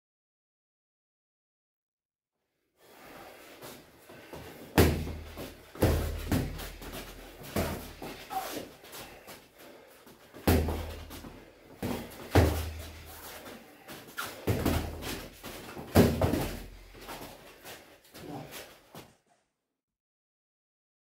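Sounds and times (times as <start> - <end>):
feet shuffling: 3.0 - 19.2
boxing gloves thudding: 4.4 - 9.1, 10.4 - 13.6, 14.2 - 17.4.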